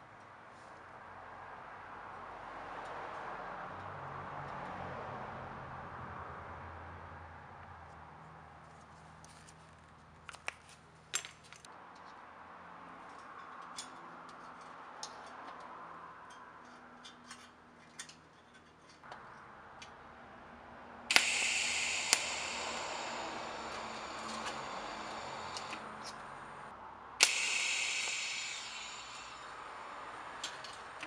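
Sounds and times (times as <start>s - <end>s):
welding arc hissing: 21.1s - 31.0s.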